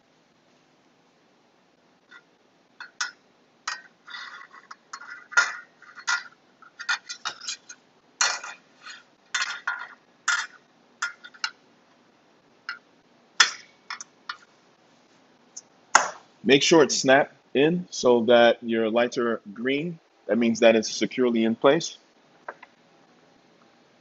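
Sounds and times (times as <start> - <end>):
clicks clinks and scrapes: 2.1 - 11.6.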